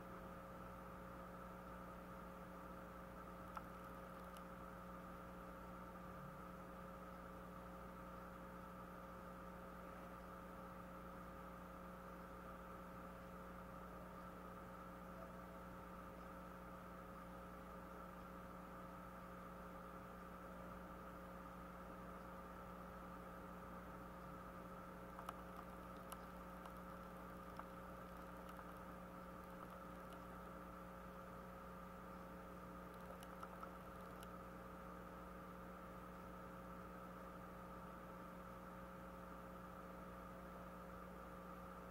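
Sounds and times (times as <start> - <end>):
electrical hum: 0.0 - 41.9
faint clicks: 3.4 - 4.6, 24.0 - 34.8.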